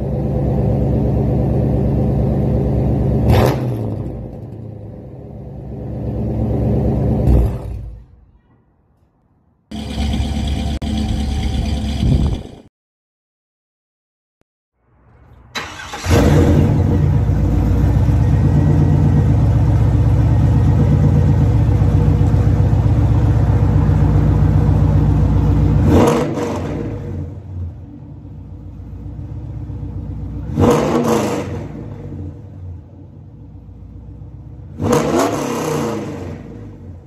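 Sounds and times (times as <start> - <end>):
car engine running and revving: 9.7 - 12.6, 16.0 - 37.0.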